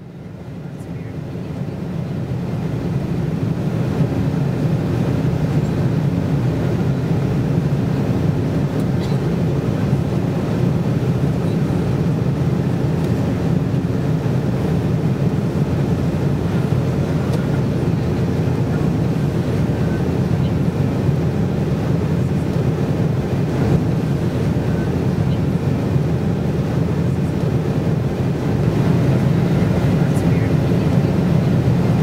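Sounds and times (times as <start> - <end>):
airliner cabin engine drone: 0.0 - 32.0.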